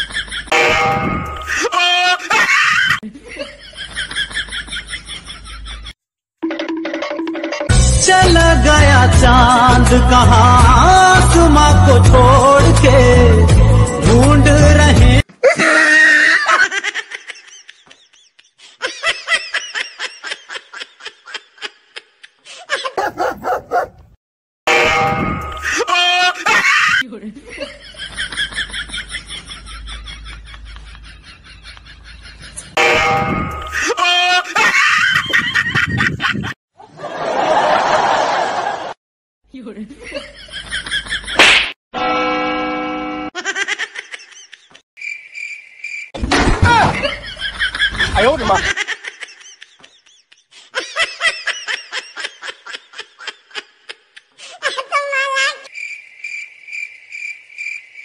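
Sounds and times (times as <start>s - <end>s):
person laughing: 1.4s - 5.9s, 15.4s - 23.8s, 25.7s - 32.7s, 33.6s - 36.6s, 46.7s - 55.4s
sharp smack: 41.4s - 41.8s.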